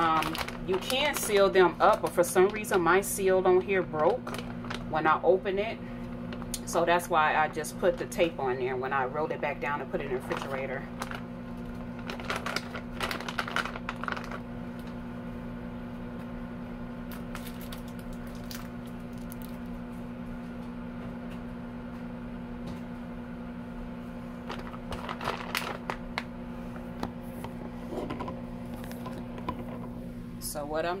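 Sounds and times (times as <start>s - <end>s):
plastic bag crinkling: 0.0s - 2.8s, 3.9s - 5.0s, 10.1s - 14.9s, 17.1s - 19.8s, 24.4s - 26.3s
microwave oven humming: 0.0s - 31.0s.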